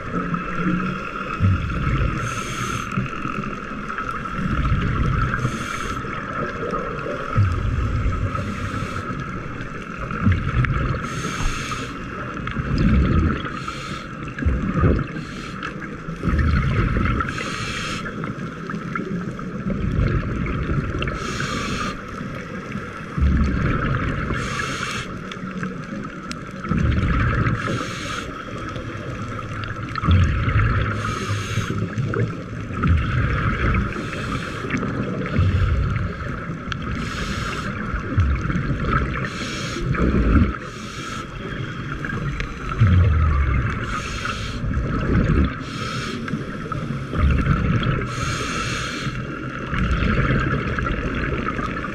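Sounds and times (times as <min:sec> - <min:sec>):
low rumble of water: 0:00.0 - 0:51.9
regulator bubbling exhalation: 0:42.6 - 0:46.0.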